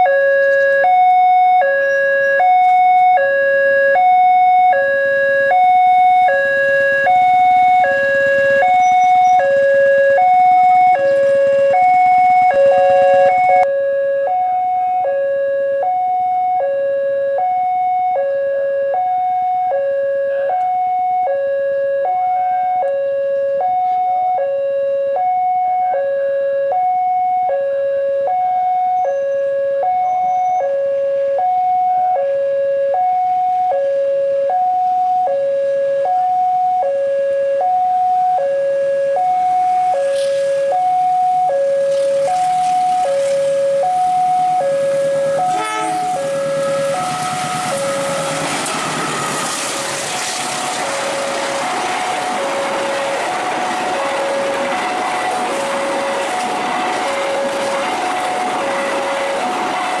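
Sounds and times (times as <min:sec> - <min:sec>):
approaching diesel locomotive: 0:00.0 - 0:13.7, 0:39.1 - 1:00.0
level crossing two-tone alarm: 0:00.0 - 1:00.0.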